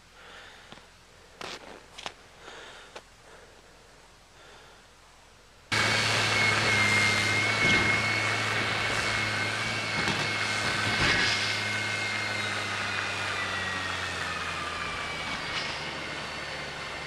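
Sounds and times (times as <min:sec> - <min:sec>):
groomer engine with high whine: 0:00.0 - 0:17.0.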